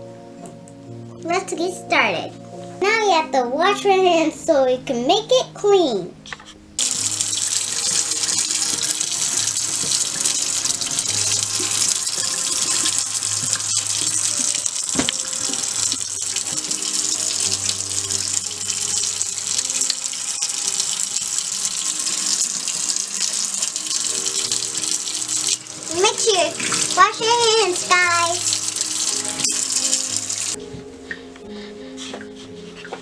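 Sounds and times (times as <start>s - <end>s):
faucet running into steel sink: 6.8s - 30.6s.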